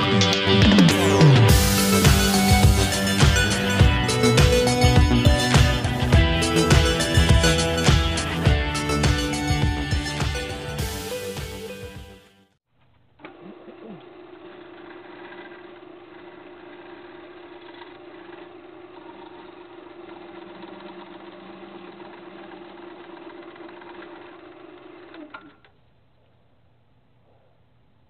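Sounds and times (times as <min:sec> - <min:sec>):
wood lathe motor humming: 0:00.6 - 0:11.0, 0:13.3 - 0:25.6
gouge cutting spinning wood: 0:13.6 - 0:25.3.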